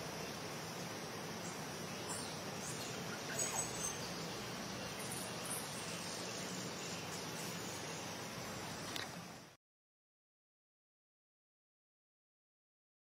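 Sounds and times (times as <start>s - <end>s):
insect hiss: 0.0s - 9.6s.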